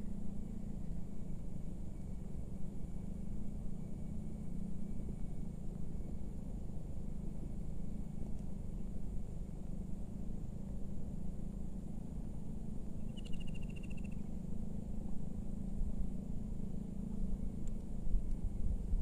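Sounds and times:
high insect tone: 12.9 - 14.3
rapid trilled call: 13.0 - 14.3.

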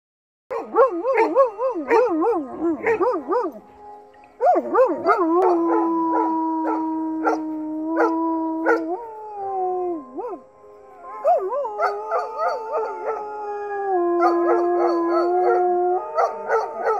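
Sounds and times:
chime melody: 0.8 - 6.8
dog howling: 4.4 - 16.9.

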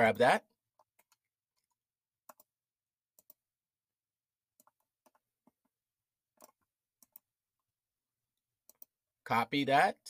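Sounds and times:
computer mouse clicking: 0.8 - 2.5, 3.2 - 3.4, 6.4 - 7.3, 8.7 - 8.9.

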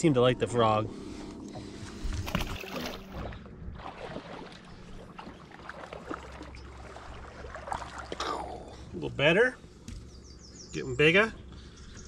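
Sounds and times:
water lapping against hull: 1.0 - 10.2
fish splashing into water: 2.2 - 8.4.

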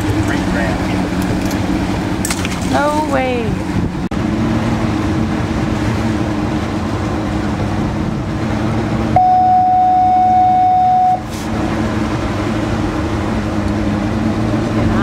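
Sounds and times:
boat engine running: 0.0 - 15.0
water noise: 0.0 - 15.0
wind: 0.0 - 15.0
loud steady tone: 9.1 - 11.3.

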